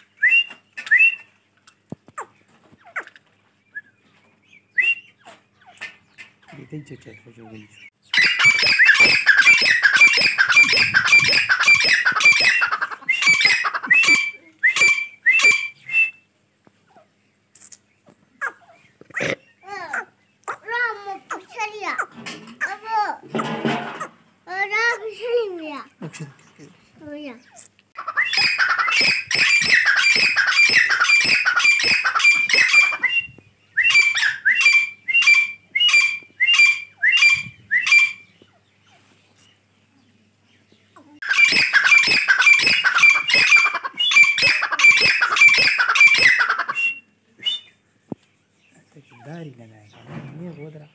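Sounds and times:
francolin calling: 6.5s - 16.3s, 27.4s - 38.8s, 41.2s - 47.8s.

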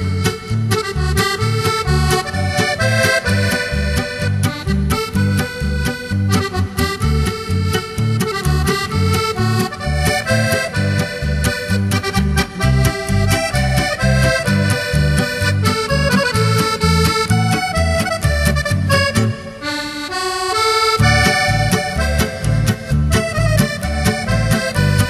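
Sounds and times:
lively instrumental music: 0.0s - 25.0s
bouncing bass beat: 10.0s - 19.3s.

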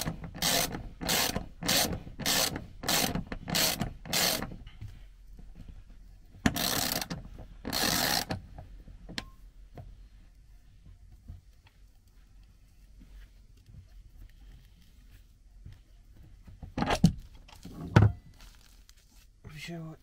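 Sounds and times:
ratchet wrench clicking: 0.0s - 4.5s, 6.5s - 8.4s.

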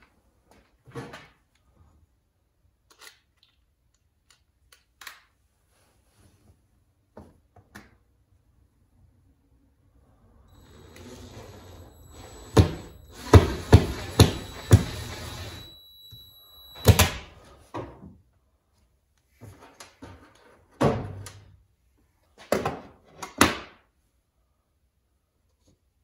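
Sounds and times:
faint high whine: 10.0s - 17.7s.

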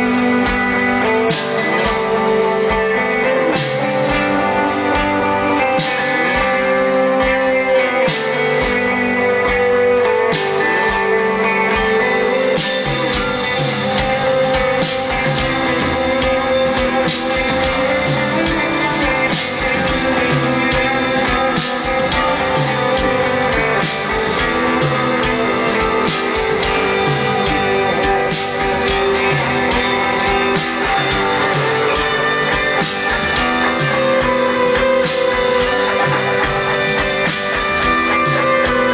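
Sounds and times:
electric guitar: 0.0s - 38.9s
live rock band playing: 0.0s - 38.9s
repeating bass line: 10.9s - 38.9s.

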